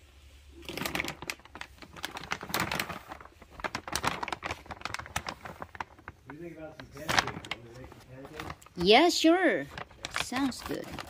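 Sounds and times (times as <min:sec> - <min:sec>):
plastic bag crinkling: 0:00.5 - 0:11.0
scissors cutting plastic bag: 0:09.7 - 0:11.0.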